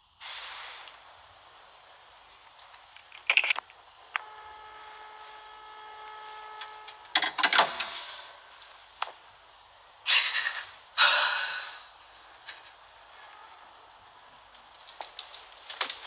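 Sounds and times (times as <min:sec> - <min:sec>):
steady phone tone: 0:04.2 - 0:07.1.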